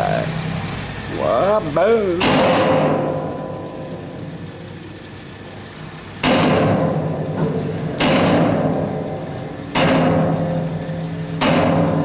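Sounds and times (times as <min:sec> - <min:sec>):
truck engine running: 0:00.0 - 0:12.0
heavy thuds of dropping load: 0:06.2 - 0:12.0.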